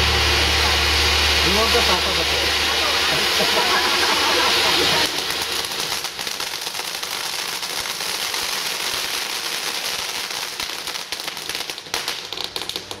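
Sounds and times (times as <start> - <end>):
dense firework crackling: 0.0 - 13.0
firework fountains hissing: 0.0 - 13.0.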